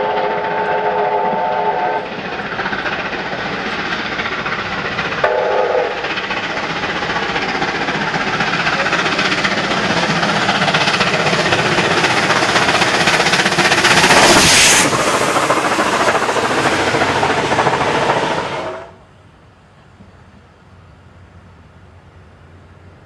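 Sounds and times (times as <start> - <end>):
train whistle: 0.0 - 2.1, 5.2 - 6.0
steam locomotive exhaust beats: 0.0 - 23.0.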